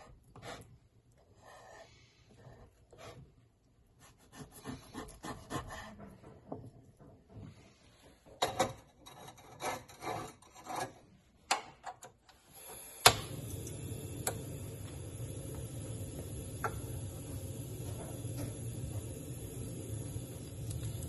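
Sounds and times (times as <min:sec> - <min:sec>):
clay pan scraping on metal grate: 0:08.6 - 0:11.1
gas burner hissing: 0:12.3 - 0:21.0
stove ignition knob click: 0:13.0 - 0:13.3.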